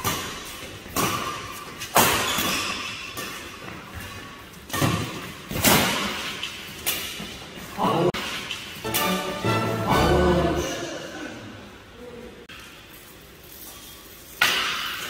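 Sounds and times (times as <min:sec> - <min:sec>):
racket hitting shuttlecock: 0:00.0 - 0:07.2, 0:14.4 - 0:15.0.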